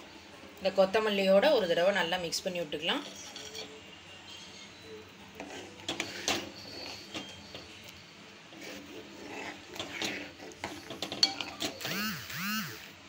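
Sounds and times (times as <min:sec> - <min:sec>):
metal ladle scraping a pan: 0:02.8 - 0:11.9.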